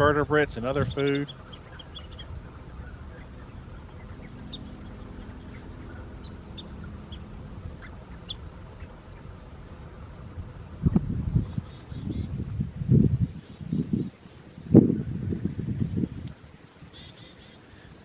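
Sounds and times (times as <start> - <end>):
faint low hum: 0.0 - 18.0
low background rush: 0.0 - 18.0
bird chirps: 0.6 - 10.1, 11.1 - 12.4, 16.7 - 18.0.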